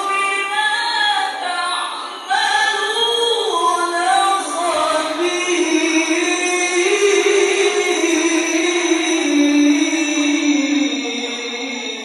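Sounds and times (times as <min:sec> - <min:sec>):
man reciting melodically: 0:04.7 - 0:12.0.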